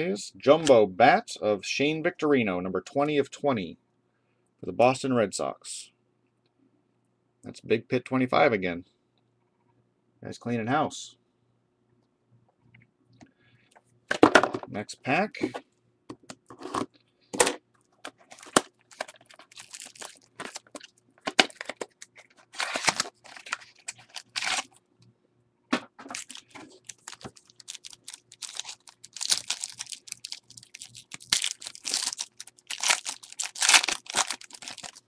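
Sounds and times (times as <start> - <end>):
foil wrapper crinkling and tearing: 18.2 - 24.8, 26.1 - 35.0.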